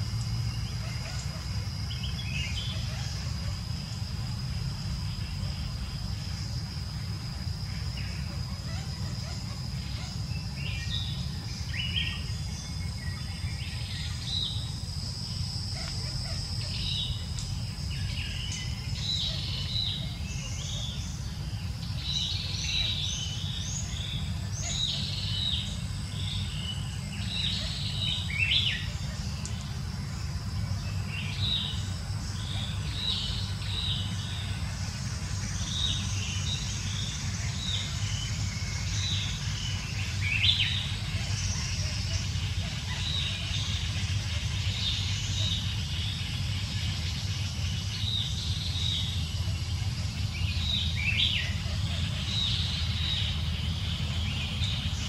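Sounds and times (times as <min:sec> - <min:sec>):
birds chirping: 0:00.0 - 0:55.0
high insect whine: 0:00.0 - 0:55.0.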